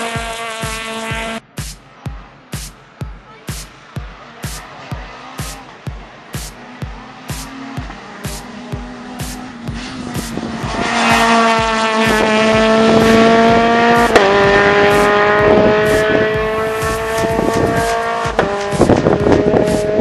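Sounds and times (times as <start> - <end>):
rally car engine revving: 0.0 - 20.0
gear upshifts: 0.3 - 20.0.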